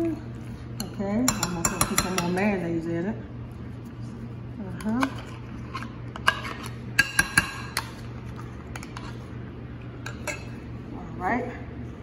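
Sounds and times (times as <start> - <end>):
metal spoon clinking against bowls: 0.8 - 2.5, 6.2 - 7.9, 10.0 - 10.6.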